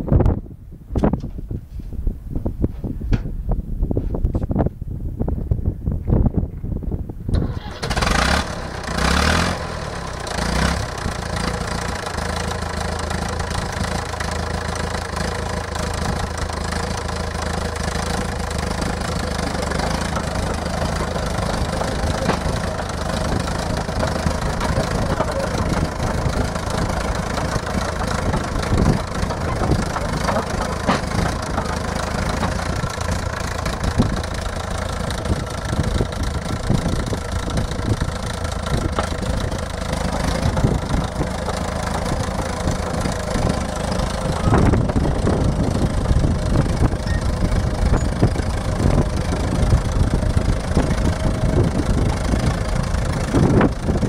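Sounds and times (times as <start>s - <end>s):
tractor engine running: 0.2s - 54.0s.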